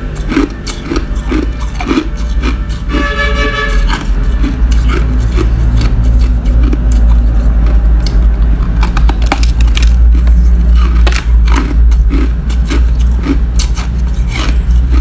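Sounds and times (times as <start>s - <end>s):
ice being chewed: 0.0s - 15.0s
low rumble: 3.5s - 15.0s.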